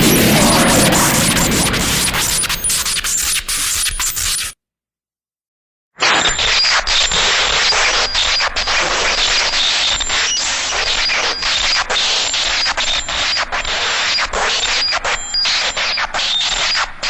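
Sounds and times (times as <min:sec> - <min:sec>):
crackling energy sound effect: 0:00.0 - 0:04.6.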